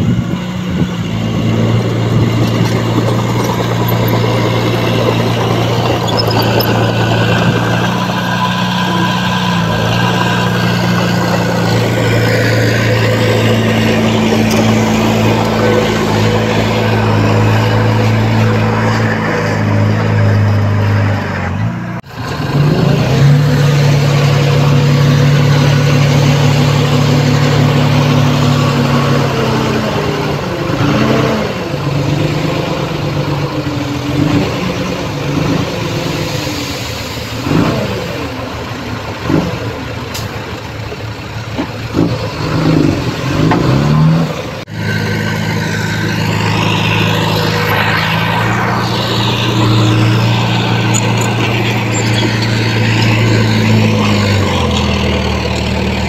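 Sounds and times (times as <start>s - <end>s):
diesel engines running and revving: 0.0s - 56.0s.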